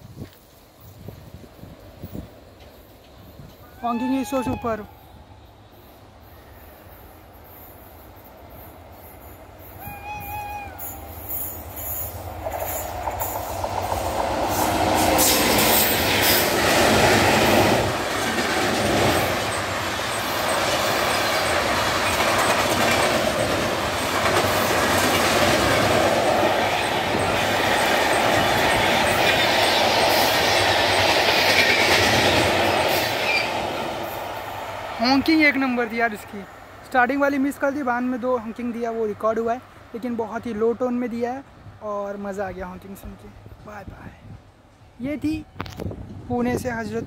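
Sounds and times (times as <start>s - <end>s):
train passing at speed: 0.0s - 47.0s
wheels rumbling over rail joints: 11.5s - 35.0s.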